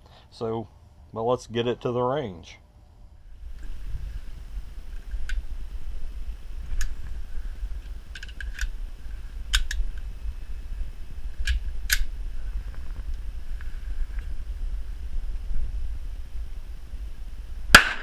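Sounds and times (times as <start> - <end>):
low rumble: 2.9 - 18.0
pistol metallic clicks: 8.2 - 8.7, 9.5 - 9.8, 11.4 - 12.1.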